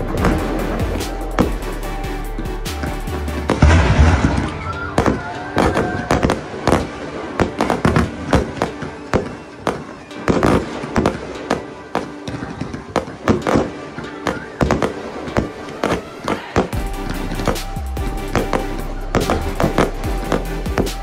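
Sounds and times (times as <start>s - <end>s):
firework bangs and crackles: 0.0s - 21.0s
heavy firework boom: 3.5s - 6.9s.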